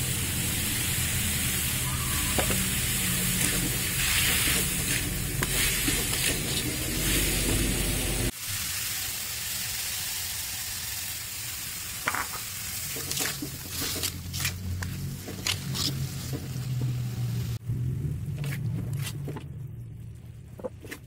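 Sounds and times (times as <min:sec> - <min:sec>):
spices sizzling in oil: 0:00.0 - 0:17.6
spatula scraping and knocking wok: 0:02.3 - 0:08.2.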